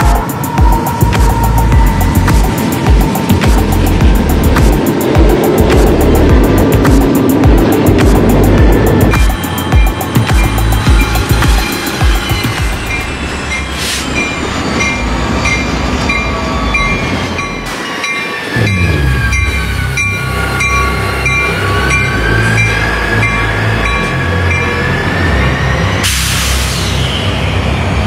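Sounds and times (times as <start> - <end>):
engine whine: 0.0 - 17.8, 18.5 - 28.0
diesel locomotive engines: 0.0 - 28.0
crossing warning bell ringing: 7.2 - 26.0.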